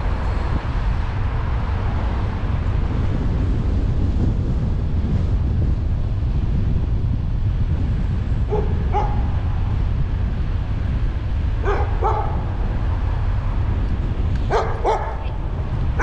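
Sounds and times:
car road and wind noise: 0.0 - 16.0
dog barking: 8.5 - 9.4, 11.6 - 12.5, 14.5 - 15.4.

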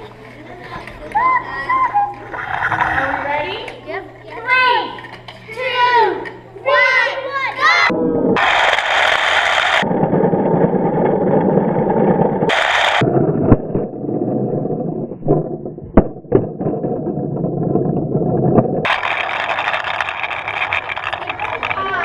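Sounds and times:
wooden wheels rumbling on track: 8.0 - 22.0.

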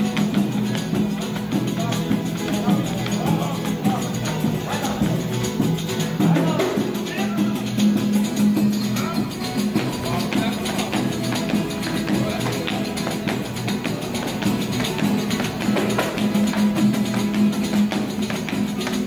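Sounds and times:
drum beaten with sticks: 0.0 - 19.0
strummed violas and guitar: 0.0 - 19.0.

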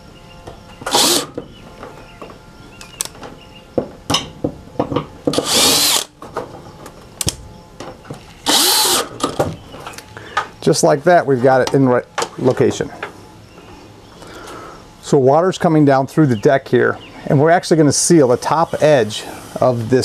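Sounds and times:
cordless drill driving screws: 0.9 - 1.4, 5.4 - 6.1, 8.4 - 9.1.

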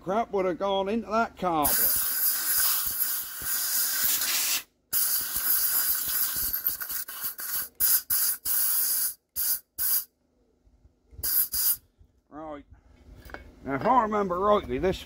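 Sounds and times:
compressed air blow gun hissing: 1.7 - 10.1, 11.2 - 11.8.

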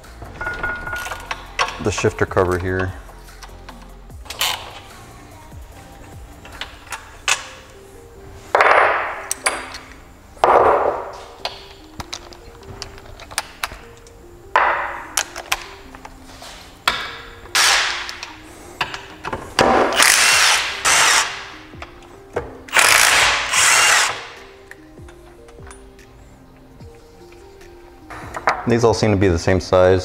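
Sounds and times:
faint background music: 0.0 - 30.0
cordless power driver spinning: 20.0 - 21.3, 22.7 - 24.2.

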